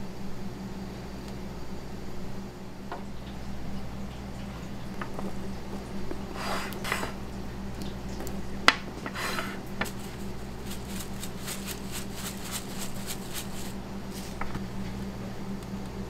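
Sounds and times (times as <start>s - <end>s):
steady low hum: 0.0s - 16.0s
plastic shaker rattling: 9.8s - 14.4s.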